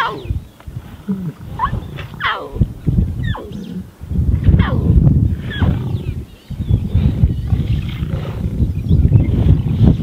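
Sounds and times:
lion cubs mewing: 0.0s - 0.4s, 1.0s - 3.9s.

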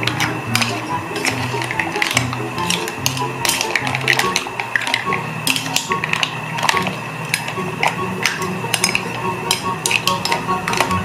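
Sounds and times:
background music: 0.0s - 11.0s
metal ladle clinking and scraping pan: 0.1s - 6.7s.

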